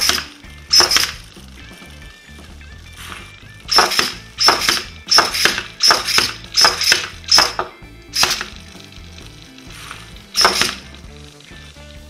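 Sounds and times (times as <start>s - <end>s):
robot hammer hitting plastic: 0.0s - 1.2s, 3.7s - 8.6s, 10.4s - 11.0s.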